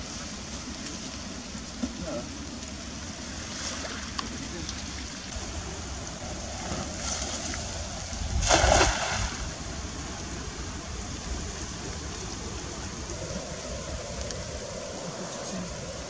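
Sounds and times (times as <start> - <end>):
water lapping: 0.0 - 16.0
wind: 0.0 - 16.0
loud water splash: 6.6 - 9.8.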